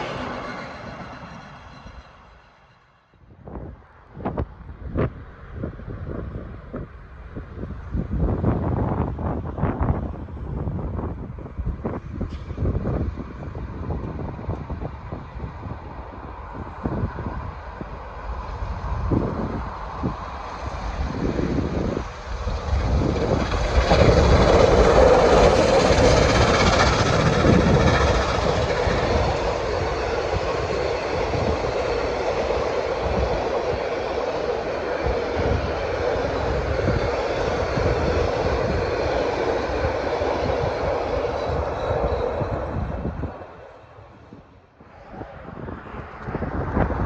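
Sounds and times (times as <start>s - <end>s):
carriages rumbling by: 0.0s - 2.9s, 15.9s - 44.3s
steam locomotives passing: 0.0s - 47.0s
wheels clattering on rails: 19.7s - 43.3s.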